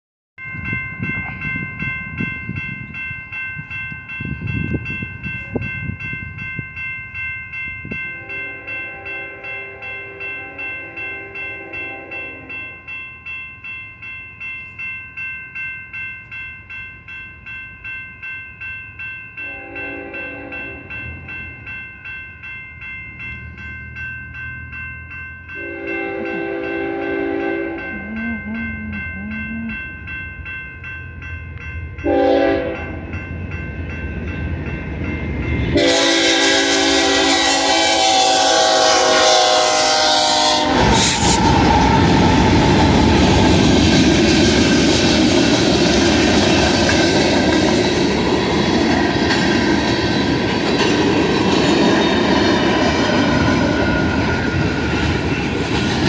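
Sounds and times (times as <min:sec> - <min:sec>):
railroad crossing bell ringing: 0:00.4 - 0:56.0
locomotive horn blasts: 0:08.2 - 0:12.6, 0:19.4 - 0:20.9, 0:25.6 - 0:28.9, 0:32.0 - 0:33.0, 0:35.7 - 0:41.5.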